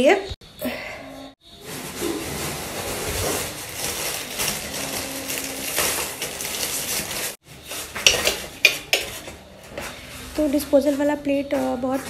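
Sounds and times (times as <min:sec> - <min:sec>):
plastic packet rustling: 0:01.6 - 0:09.4
plates clattering: 0:08.0 - 0:09.4.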